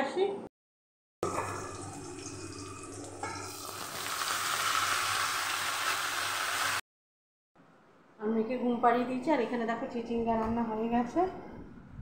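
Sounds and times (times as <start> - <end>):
vegetables sizzling in a wok: 1.8 - 6.8.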